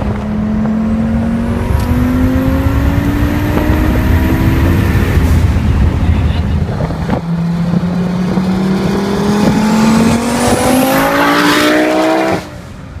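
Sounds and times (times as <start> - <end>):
car accelerating past: 7.4 - 12.7.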